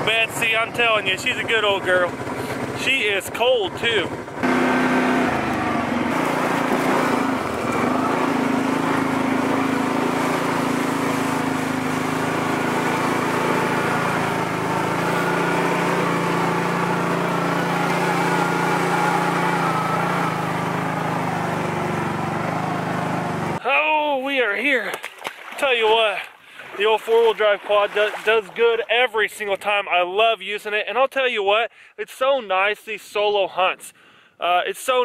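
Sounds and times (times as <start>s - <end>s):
atv engine running: 0.0s - 23.6s.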